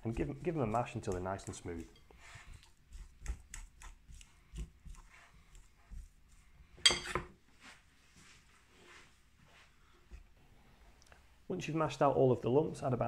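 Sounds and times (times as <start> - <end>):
fork scraping glass bowl: 0.1 - 5.2
fork clinking glass: 6.8 - 7.3.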